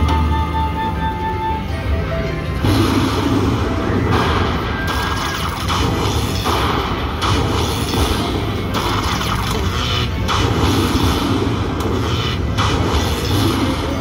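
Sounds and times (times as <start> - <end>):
slot machine electronic music: 0.0 - 14.0.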